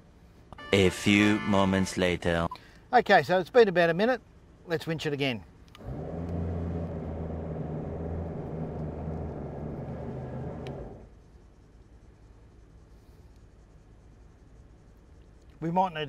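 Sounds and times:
faint steady background: 0.0 - 16.0
winch humming under load: 5.8 - 11.1.

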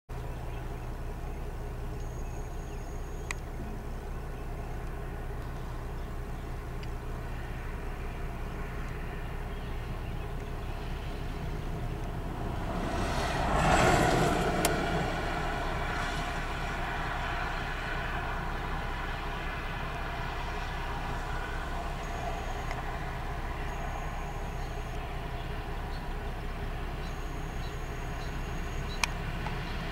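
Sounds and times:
low traffic rumble: 0.1 - 29.9
vehicle passing: 10.7 - 27.1.

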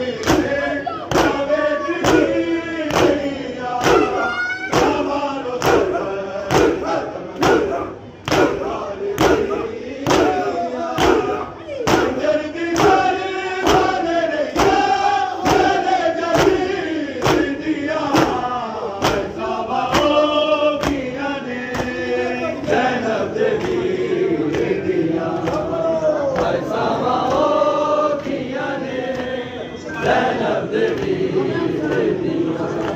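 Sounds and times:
men chanting together: 0.0 - 32.9
hands slapping bare chests: 2.0 - 13.0.

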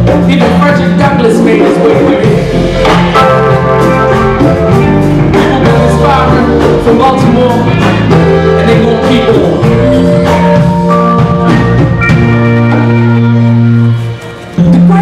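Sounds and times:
live band playing: 0.0 - 15.0
drum hits: 1.8 - 13.0.

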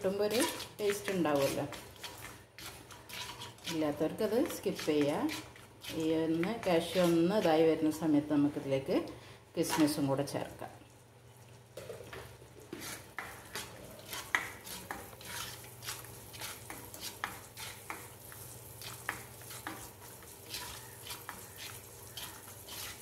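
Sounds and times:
plastic spoon scraping pan: 0.0 - 7.5, 12.7 - 18.1, 20.5 - 23.0
light sizzle of frying: 0.0 - 23.0.

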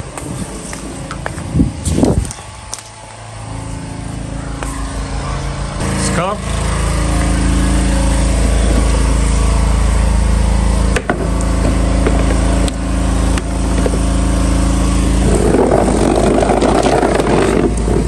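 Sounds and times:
motor humming: 0.0 - 18.0
rough scraping: 11.7 - 18.0.

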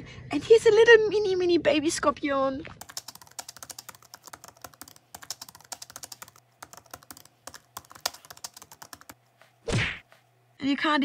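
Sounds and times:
keyboard key clicks: 2.8 - 9.2.

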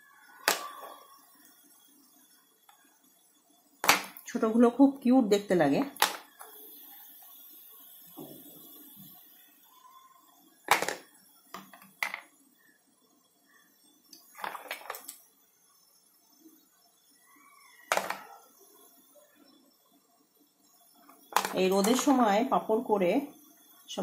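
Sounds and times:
plastic lids knocking on tray: 17.9 - 18.2.

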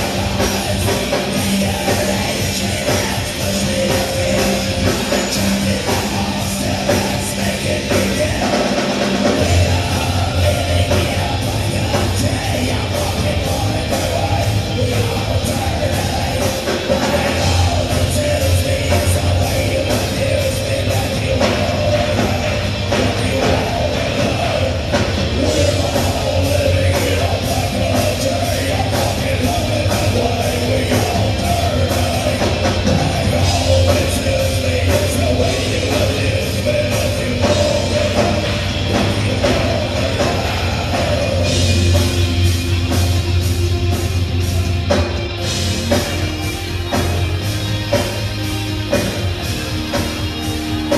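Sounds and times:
person singing: 0.0 - 43.1
live heavy rock band: 0.0 - 50.9.

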